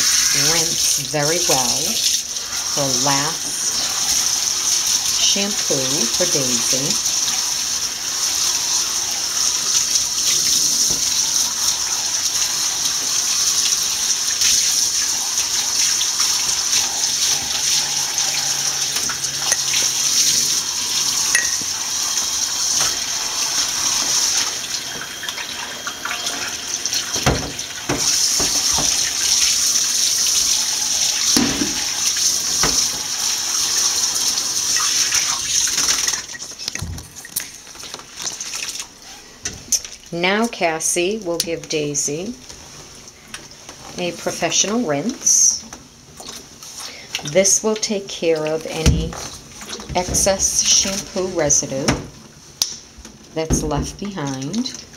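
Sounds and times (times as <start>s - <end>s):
shower sprayer water running: 0.0s - 54.9s.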